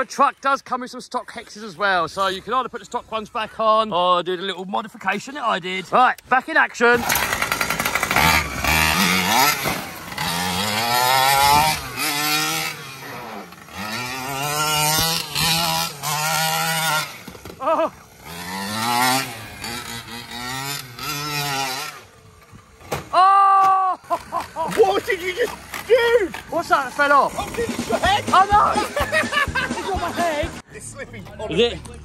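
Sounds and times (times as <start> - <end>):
model truck engine revving: 6.9 - 22.3.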